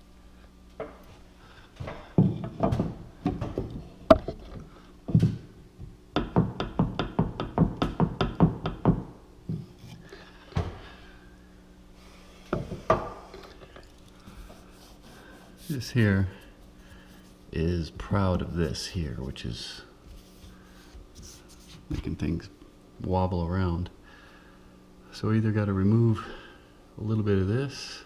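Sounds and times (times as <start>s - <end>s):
wooden molding knocking on cabinets: 2.2s - 4.3s, 6.2s - 9.2s.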